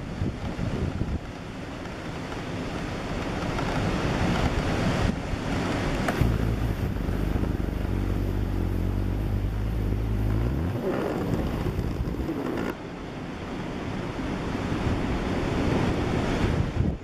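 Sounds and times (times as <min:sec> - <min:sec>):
strong wind: 0:00.0 - 0:17.0
surf washing over seawall: 0:00.0 - 0:17.0
deep low rumble: 0:06.1 - 0:12.8.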